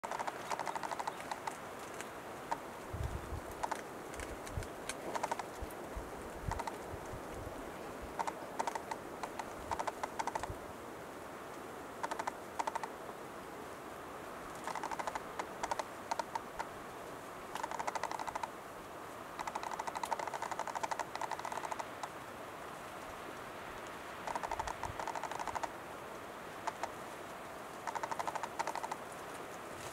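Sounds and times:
bird display song clicks: 0.0 - 2.6, 3.5 - 5.5, 6.5 - 6.8, 8.2 - 10.5, 12.0 - 12.9, 14.6 - 16.7, 17.6 - 18.5, 19.4 - 22.1, 24.2 - 25.7, 26.6 - 27.0, 27.8 - 29.0.

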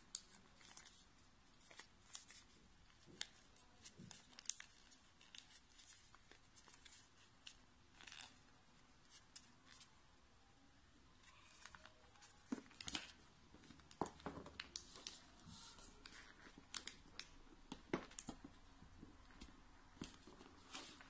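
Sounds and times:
crisp paper crackles: 0.1 - 8.4
paper being folded: 0.1 - 8.4.

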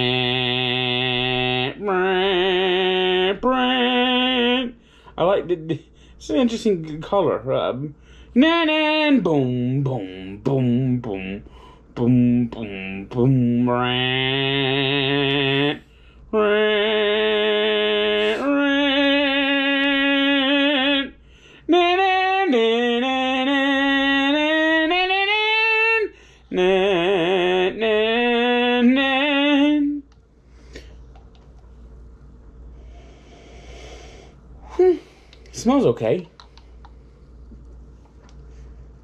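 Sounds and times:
man singing unaccompanied: 0.0 - 30.1.

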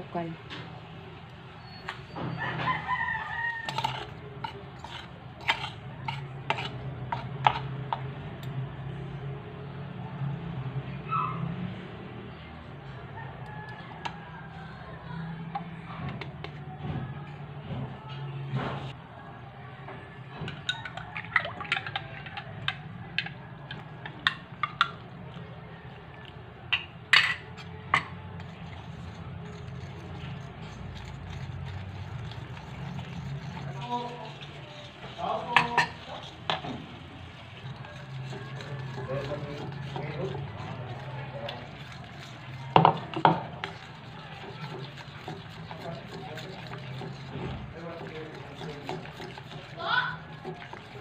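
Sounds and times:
rooster crowing: 2.1 - 4.2, 12.9 - 15.0
spoons clinking against bowl: 3.5 - 7.6, 26.8 - 51.0
drips: 20.5 - 27.0, 28.6 - 51.0.

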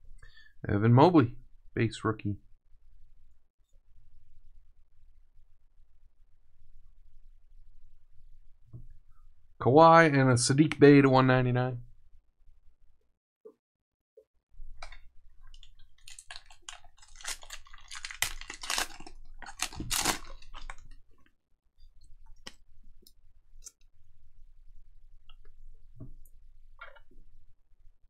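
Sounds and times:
foil pack crinkling and tearing: 15.5 - 21.1.

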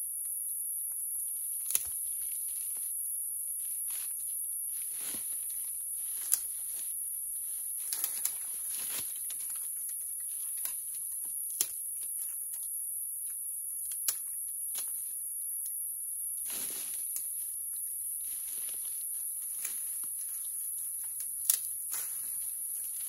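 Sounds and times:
high-pitched insect chorus: 0.0 - 23.0
rustles of brush: 3.6 - 9.7, 16.4 - 21.2.

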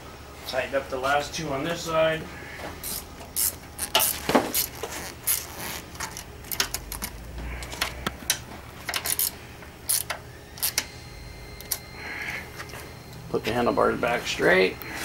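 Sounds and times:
hand ratchet clicking: 2.8 - 7.2, 7.8 - 10.9.

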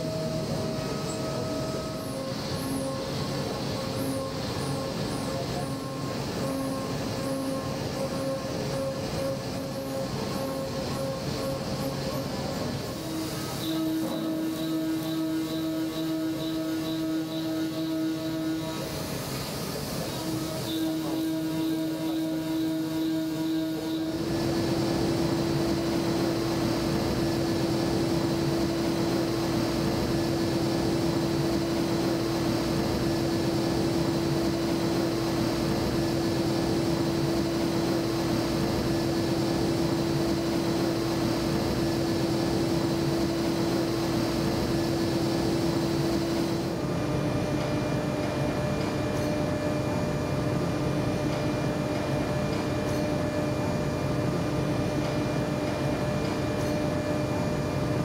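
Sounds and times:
machine spindle hum: 20.1 - 58.0.

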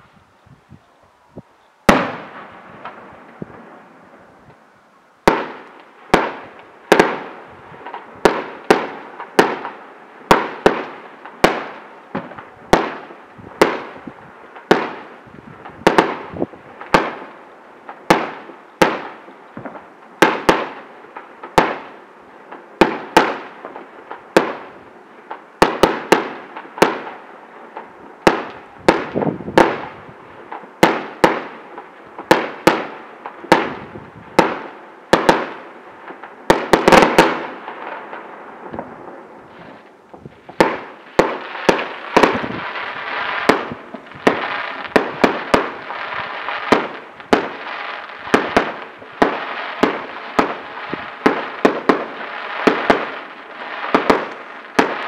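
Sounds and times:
fireworks bursting with echo: 1.8 - 4.6, 5.2 - 55.0.

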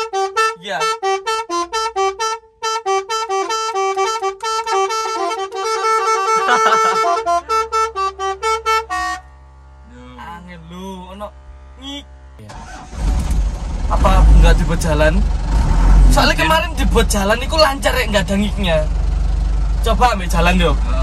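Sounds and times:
truck musical horn melody: 0.0 - 10.0.

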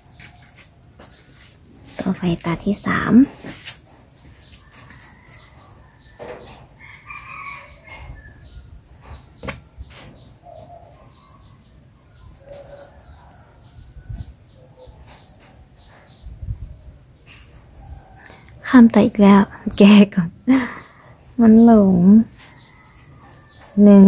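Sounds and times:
faint bird chirps: 4.3 - 24.0.

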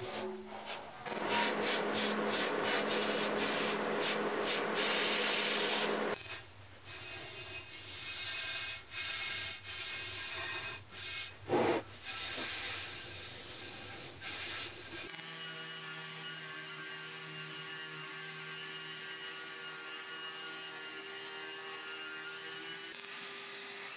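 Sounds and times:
hand sanding metal: 0.0 - 6.2.

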